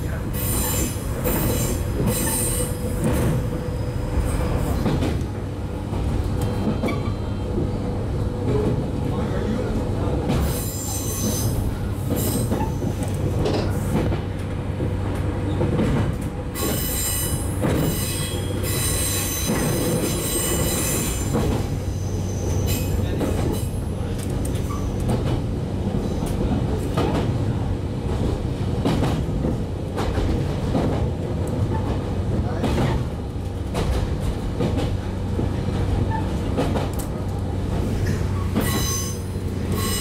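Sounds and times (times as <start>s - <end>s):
rail-joint clacks: 0.0s - 7.8s, 10.2s - 40.0s
train wheels rumbling on rails: 0.0s - 40.0s
high-pitched wheel squeal: 0.5s - 2.8s, 38.4s - 40.0s.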